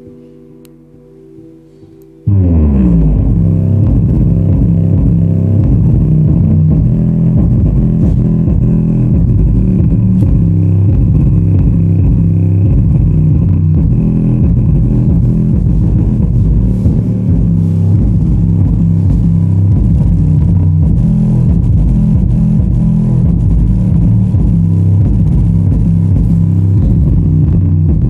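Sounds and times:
bass-heavy music through subwoofers: 0:01.4 - 0:28.0.

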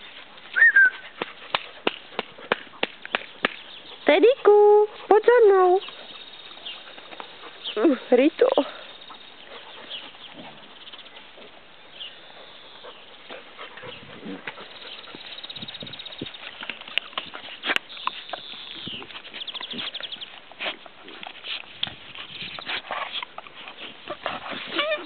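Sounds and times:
dogs scuffling on grass: 0:00.0 - 0:25.0
puppy squealing and whimpering: 0:24.7 - 0:25.0.

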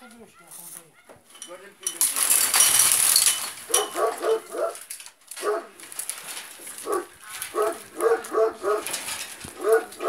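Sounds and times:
dog barking: 0:03.7 - 0:04.8, 0:05.4 - 0:05.8, 0:06.8 - 0:10.0.

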